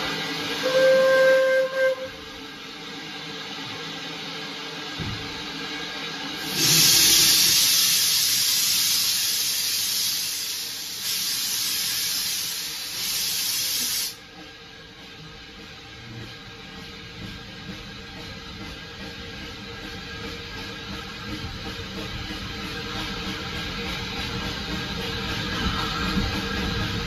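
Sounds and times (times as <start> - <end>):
steam hissing from locomotive: 0.0 - 27.0
steam whistle blast: 0.4 - 2.4, 6.5 - 14.2.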